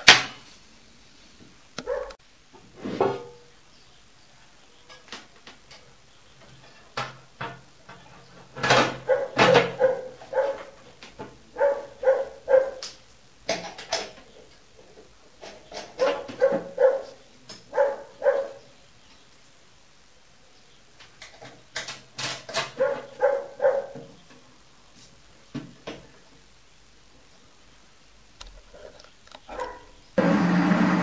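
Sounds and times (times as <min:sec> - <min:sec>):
dog barking: 0:01.8 - 0:02.2, 0:09.0 - 0:10.8, 0:11.5 - 0:12.9, 0:16.0 - 0:18.7, 0:22.7 - 0:24.1, 0:29.5 - 0:30.0.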